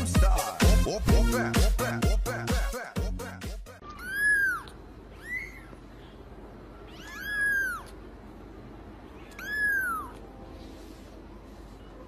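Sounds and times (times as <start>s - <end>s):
kitten meowing: 3.8s - 5.8s, 6.8s - 8.0s, 9.2s - 10.3s.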